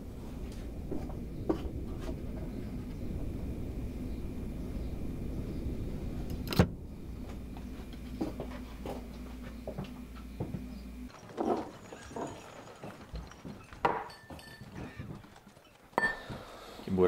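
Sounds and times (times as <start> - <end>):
low electrical hum: 0.0 - 17.0
soft footsteps on floor: 7.2 - 10.8.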